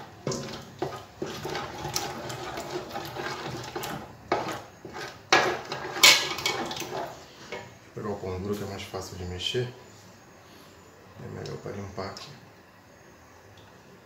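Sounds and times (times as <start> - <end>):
wooden spoon stirring in metal pot: 0.0 - 7.8.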